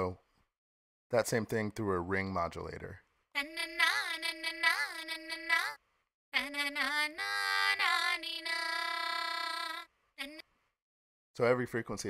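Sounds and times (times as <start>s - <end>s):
ring-modulated sung vocal: 3.4s - 5.8s, 6.4s - 10.4s.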